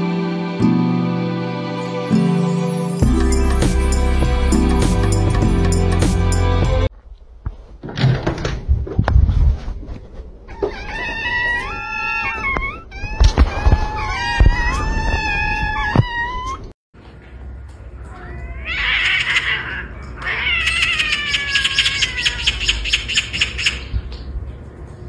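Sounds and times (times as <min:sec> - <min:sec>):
drawn-out cat cries: 0:10.5 - 0:16.7, 0:18.1 - 0:22.9
kittens meowing: 0:10.5 - 0:16.7, 0:18.1 - 0:23.0.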